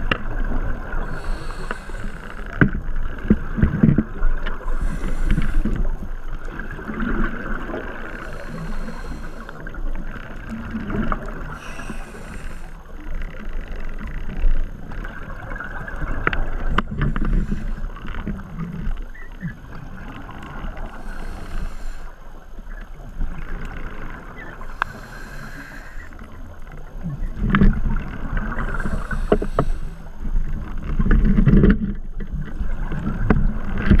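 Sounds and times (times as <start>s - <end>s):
muffled underwater water movement: 0.0s - 34.0s
short hissing bursts: 1.1s - 2.4s, 4.8s - 5.8s, 11.5s - 12.8s, 20.9s - 22.2s, 24.7s - 26.2s, 28.7s - 30.1s.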